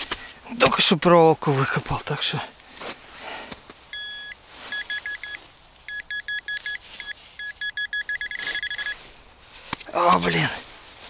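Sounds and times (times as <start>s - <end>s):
metal detector beeping: 3.9s - 9.1s.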